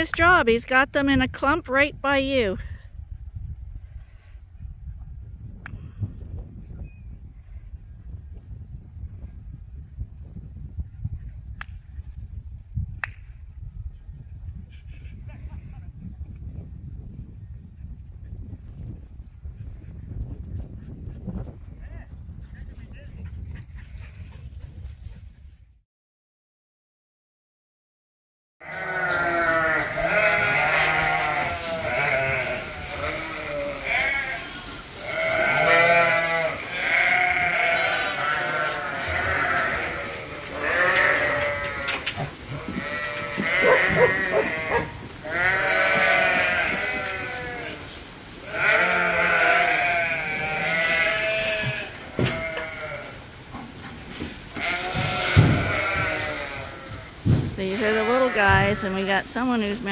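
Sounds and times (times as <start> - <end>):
sheep and lambs bleating: 28.6 - 53.2, 54.5 - 59.9.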